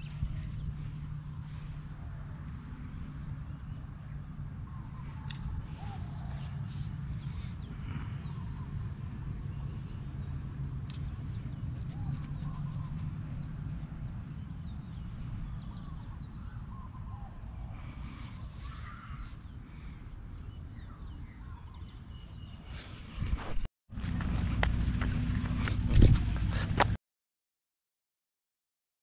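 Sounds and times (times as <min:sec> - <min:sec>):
bird chirps: 0:00.0 - 0:01.2, 0:11.1 - 0:13.6
steady low rumble: 0:00.0 - 0:18.5, 0:22.8 - 0:27.0.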